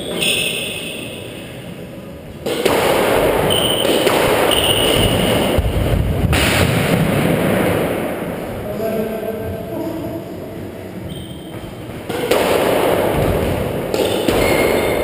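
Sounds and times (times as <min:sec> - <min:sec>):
rackets striking squash ball: 0:00.0 - 0:01.4, 0:02.4 - 0:08.5, 0:11.1 - 0:15.0
shoes squeaking on floor: 0:00.0 - 0:01.4, 0:03.5 - 0:05.5, 0:11.0 - 0:12.0, 0:14.0 - 0:15.0
ball hitting walls: 0:02.4 - 0:07.9, 0:11.5 - 0:15.0.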